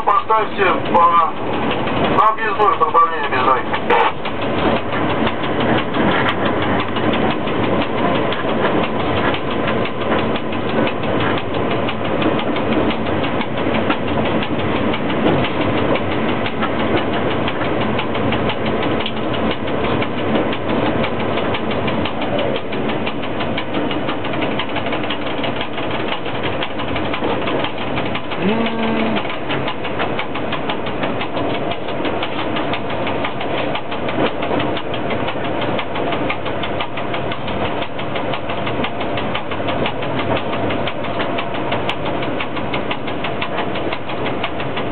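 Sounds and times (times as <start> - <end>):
fast dense rattling: 0.0 - 44.9
locomotive running noise: 0.0 - 44.9.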